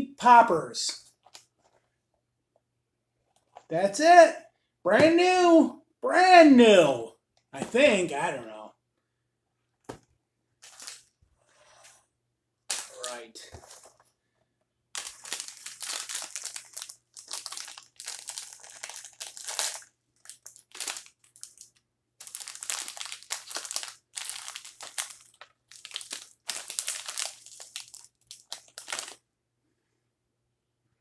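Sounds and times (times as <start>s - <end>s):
plastic snack pouch crinkling: 12.7s - 13.8s, 14.9s - 29.2s.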